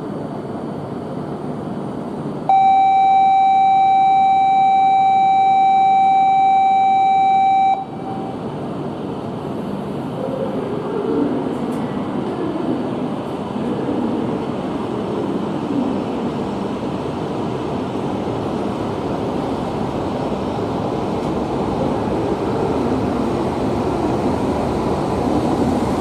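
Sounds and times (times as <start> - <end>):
electronic departure buzzer beep: 2.5 - 8.4
train rumble: 7.8 - 26.0.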